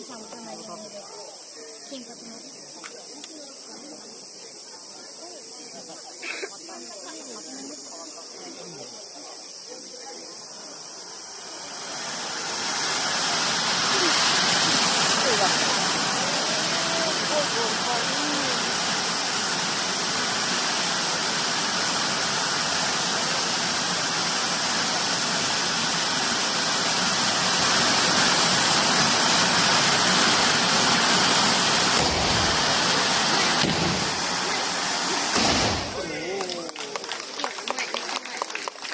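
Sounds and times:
fireworks hissing: 0.0 - 38.9
low bangs of fireworks: 30.6 - 36.2.

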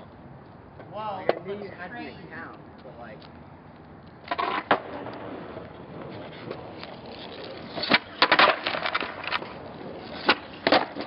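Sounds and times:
skateboard wheels rolling on concrete: 0.0 - 11.0
skateboard clack: 0.8 - 1.7, 4.2 - 11.0
skateboard clattering on concrete: 4.2 - 11.0
skateboard tail snapping: 4.3 - 11.0.

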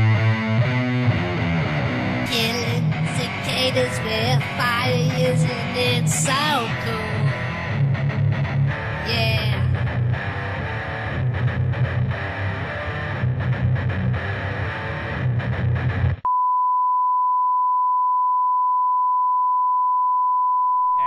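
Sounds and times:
distorted electric guitar music: 0.0 - 16.3
steady test tone beep: 16.3 - 21.0.

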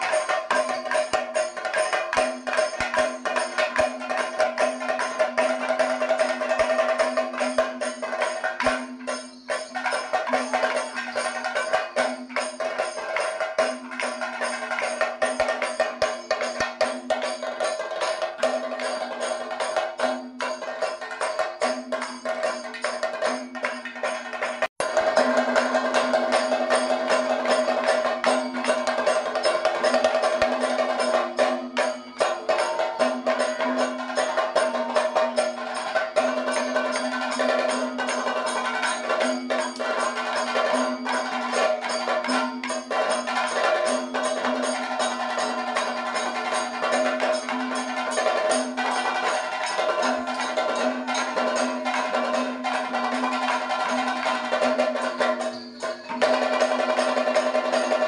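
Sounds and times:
steady ringing pitched tone: 0.0 - 23.8
drum in fast dense strokes: 0.0 - 58.0.

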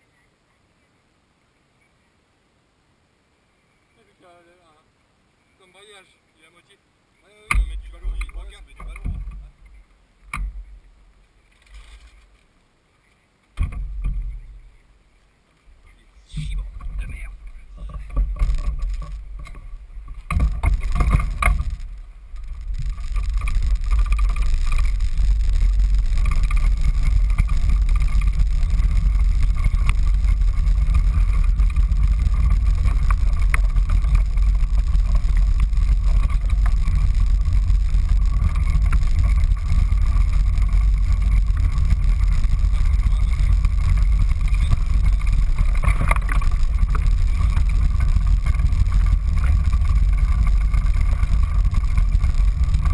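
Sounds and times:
kart engine running: 16.4 - 52.9.

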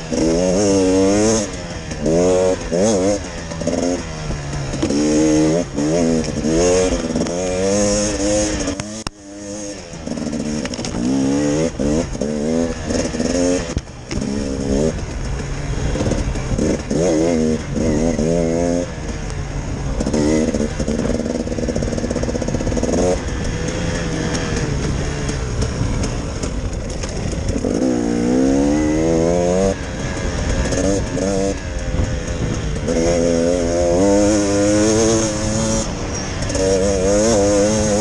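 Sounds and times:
dirt bike engine revving: 0.0 - 38.0.

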